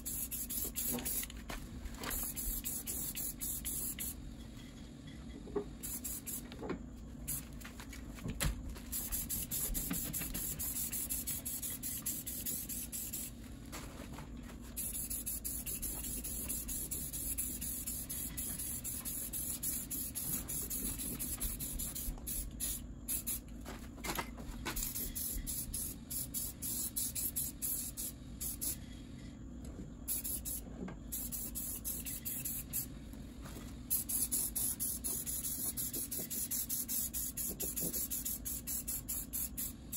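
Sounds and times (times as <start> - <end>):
spray paint can hissing: 0.0 - 1.3, 2.1 - 4.2, 5.8 - 6.5, 7.3 - 7.5, 8.8 - 13.3, 14.8 - 23.4, 24.8 - 28.8, 30.1 - 32.9, 33.9 - 39.9.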